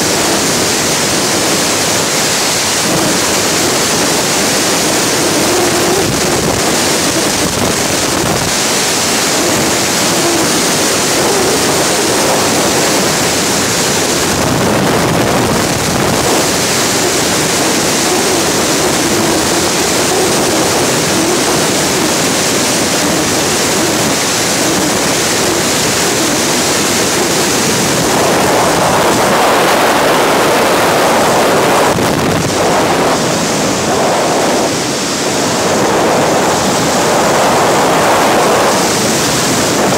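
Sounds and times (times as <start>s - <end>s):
freefall wind rushing over microphone: 0.0s - 39.9s.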